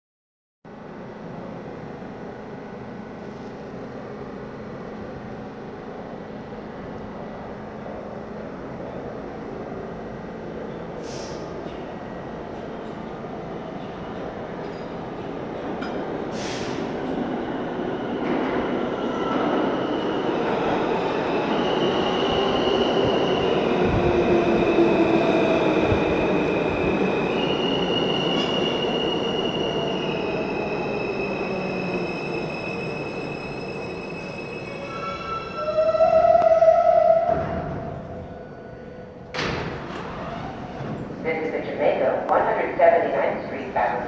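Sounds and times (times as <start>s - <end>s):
loud train tone: 13.2s - 39.2s.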